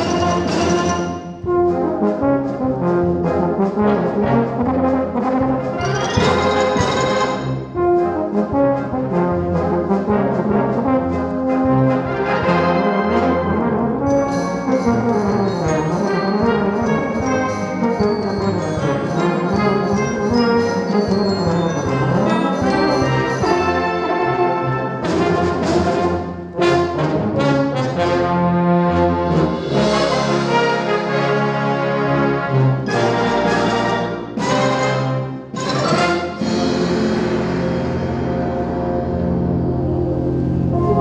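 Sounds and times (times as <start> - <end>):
brass band playing: 0.0 - 41.0
euphonium solo: 39.8 - 41.0.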